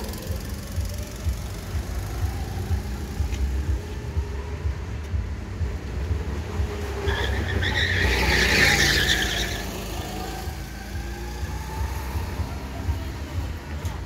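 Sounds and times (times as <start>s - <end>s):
go-kart engines running: 0.0s - 14.0s
tyre skid squealing: 6.8s - 10.5s.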